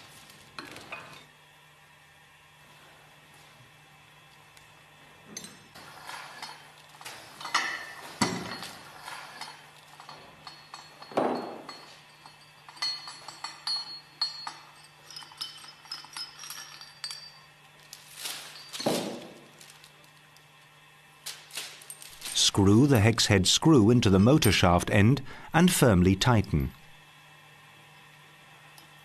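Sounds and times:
steel parts clinking and knocking: 5.3s - 19.6s
light metallic ringing: 7.4s - 17.6s.

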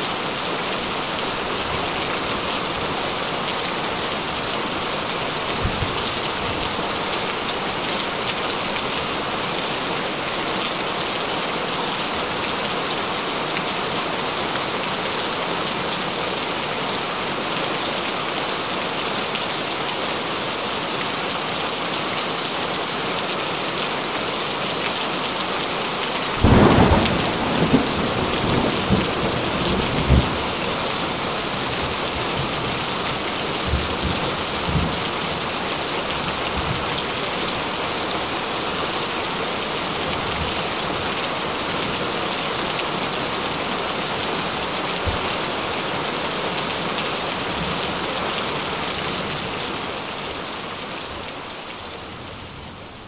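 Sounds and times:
heavy rain: 0.0s - 53.0s
thunder rumbling: 26.4s - 31.4s.

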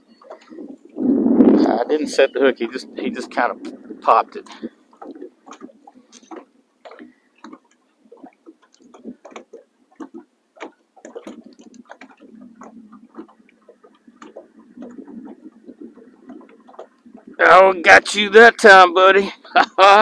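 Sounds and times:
small waves lapping against boat hull: 0.0s - 19.2s.

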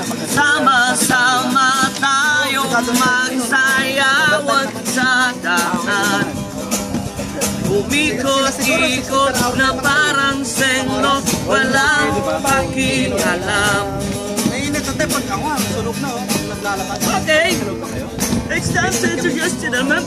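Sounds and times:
people singing: 0.0s - 15.2s
acoustic guitar strumming: 0.0s - 20.0s.

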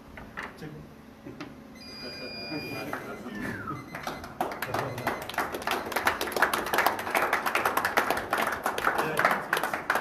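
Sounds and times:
crowd applauding: 3.9s - 10.0s.

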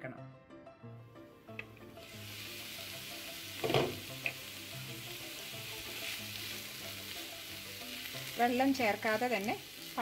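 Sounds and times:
vegetables sizzling in a frying pan: 1.9s - 10.0s
knock against pan: 3.6s - 4.4s.

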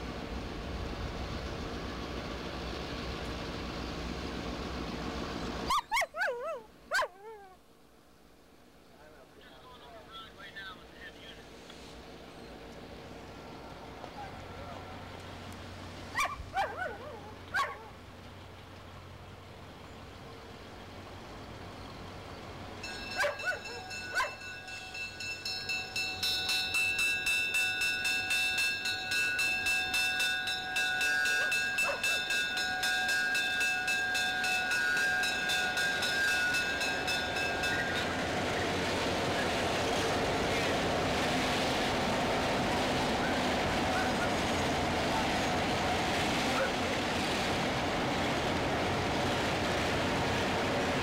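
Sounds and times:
dog barking: 16.2s - 18.0s, 23.2s - 24.4s
railroad crossing bell ringing: 22.7s - 40.3s.

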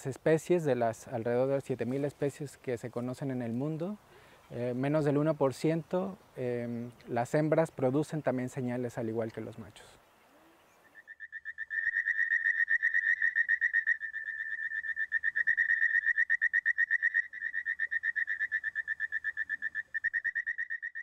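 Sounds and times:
frog trilling: 10.4s - 21.0s.

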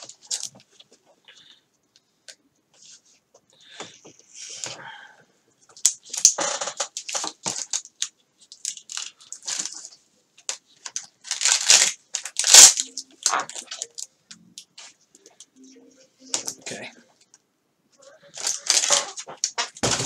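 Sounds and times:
velcro strips tearing: 11.2s - 13.9s.

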